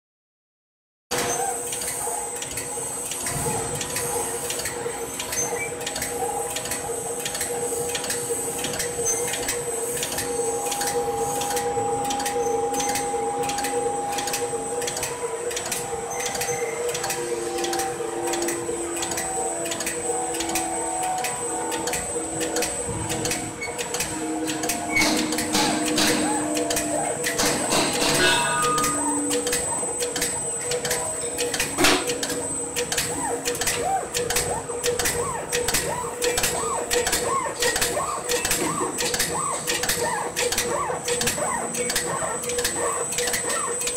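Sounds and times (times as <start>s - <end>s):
rapid mechanical clicking: 1.1s - 43.9s
motor hum: 1.6s - 43.9s.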